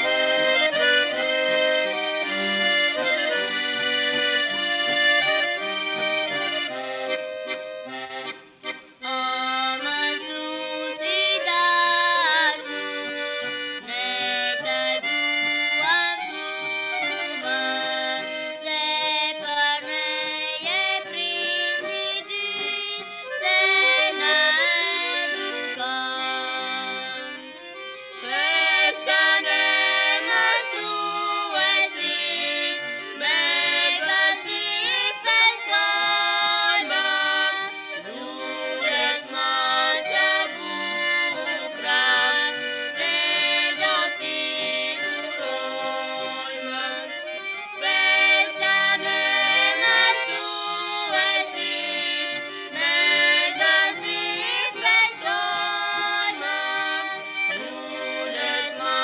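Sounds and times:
instrumental accompaniment: 0:00.0 - 0:59.0
girl and boy singing together: 0:09.0 - 0:13.0, 0:13.8 - 0:15.1, 0:15.7 - 0:16.6, 0:17.2 - 0:27.4, 0:28.2 - 0:59.0.

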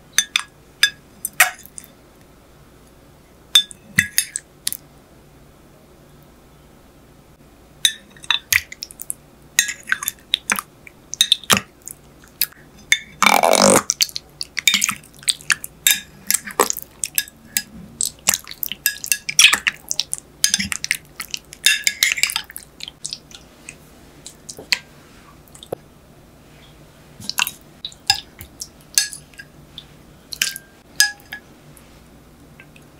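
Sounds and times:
spoon clinking and scraping glass: 0:15.9 - 0:17.7, 0:18.8 - 0:19.8, 0:21.6 - 0:22.5.

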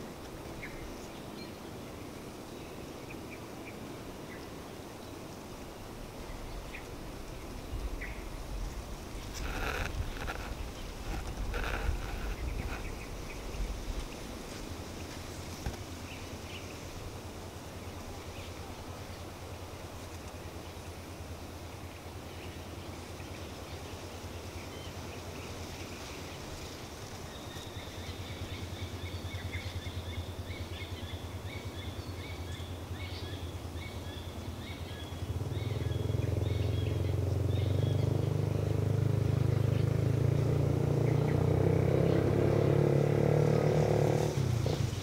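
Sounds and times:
birds chirping: 0:06.2 - 0:16.9, 0:17.8 - 0:45.0
low droning rumble: 0:06.4 - 0:14.4.

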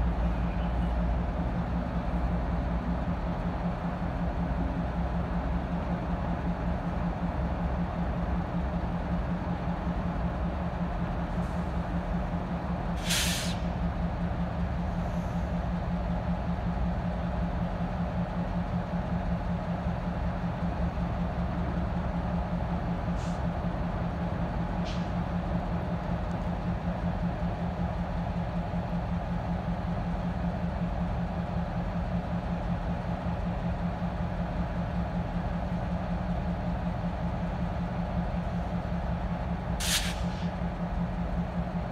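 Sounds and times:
diesel locomotive engine droning: 0:00.0 - 0:41.9
air brake hiss: 0:13.0 - 0:13.8, 0:23.2 - 0:23.5, 0:39.8 - 0:40.6.

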